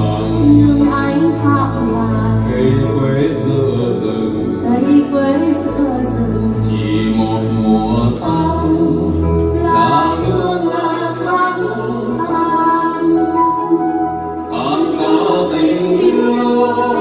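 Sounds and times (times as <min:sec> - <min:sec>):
low bass line: 0:00.0 - 0:10.8
electric keyboard: 0:00.0 - 0:17.0
person singing slow song: 0:00.0 - 0:17.0.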